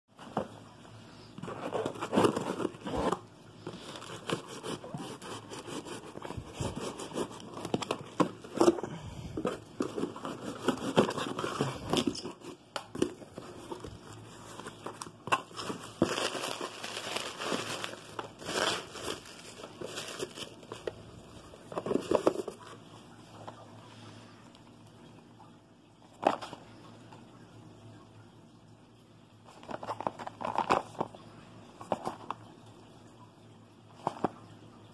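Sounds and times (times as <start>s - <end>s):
plastic wrap crinkling: 1.4s - 23.0s, 29.5s - 31.2s.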